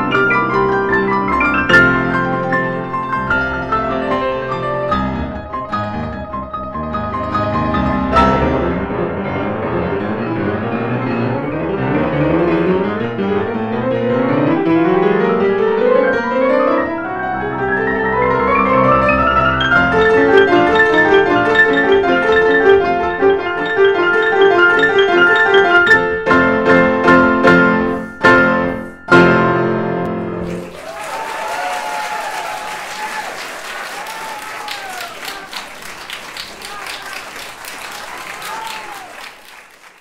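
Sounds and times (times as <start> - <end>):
two pianos playing classical music: 0.0 - 30.7.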